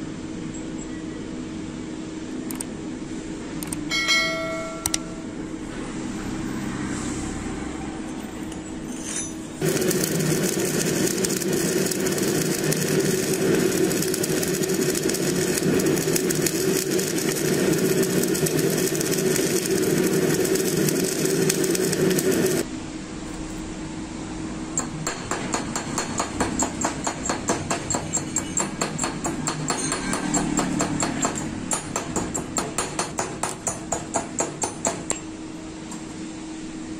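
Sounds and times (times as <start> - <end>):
welding arc crackling and buzzing: 9.6 - 22.7.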